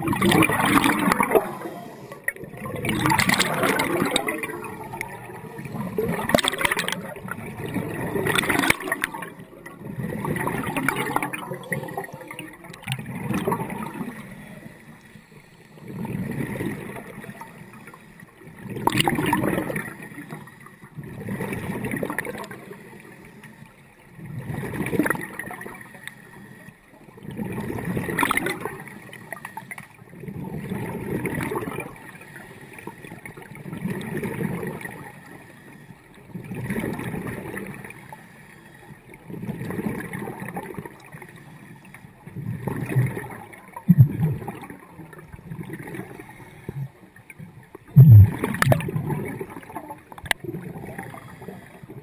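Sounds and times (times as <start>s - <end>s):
bubbles gurgling: 0.0s - 14.7s, 15.7s - 17.7s, 18.4s - 22.8s, 24.2s - 25.9s, 27.2s - 29.4s, 30.1s - 32.1s, 33.3s - 35.1s, 36.3s - 37.9s, 39.2s - 41.2s, 42.2s - 52.0s
diver breathing through regulator: 50.9s - 51.9s.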